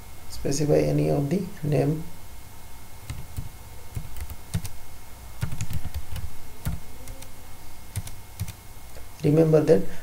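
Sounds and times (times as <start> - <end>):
computer keyboard typing: 3.0 - 4.8, 5.4 - 7.3, 7.9 - 8.6.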